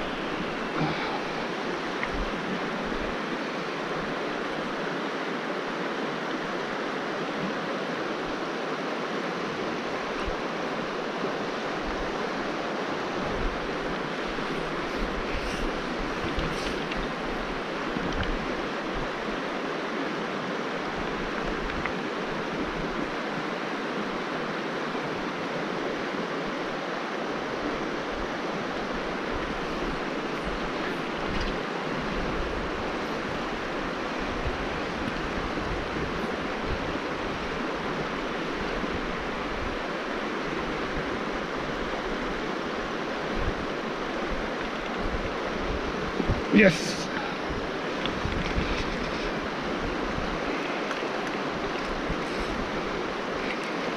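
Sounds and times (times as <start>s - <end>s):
creek rushing over stones: 0.0s - 53.9s
wind buffeting microphone: 13.1s - 19.2s, 28.1s - 46.6s, 47.4s - 53.9s.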